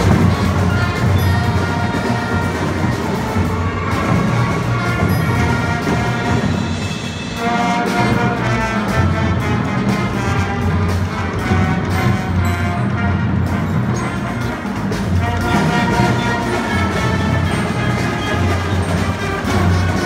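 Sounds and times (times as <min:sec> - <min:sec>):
drum hits: 0:00.0 - 0:20.0
marching band playing: 0:00.0 - 0:20.0.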